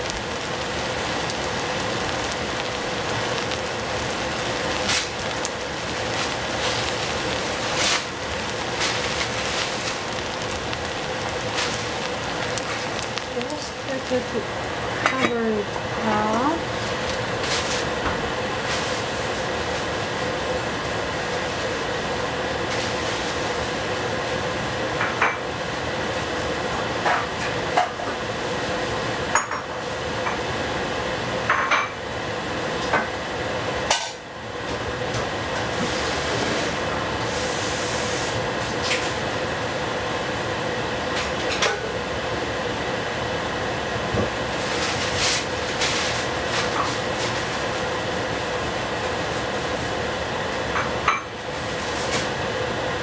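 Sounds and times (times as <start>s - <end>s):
food hissing in a covered pan: 0.0s - 53.0s.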